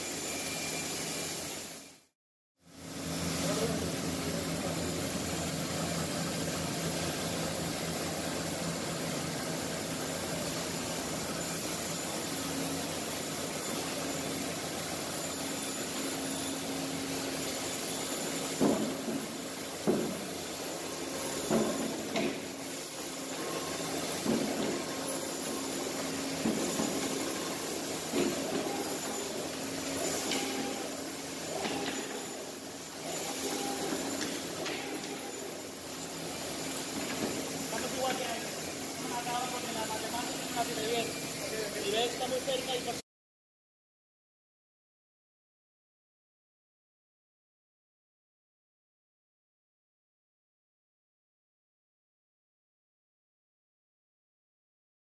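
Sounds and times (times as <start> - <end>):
band saw motor humming: 19.8 - 42.9.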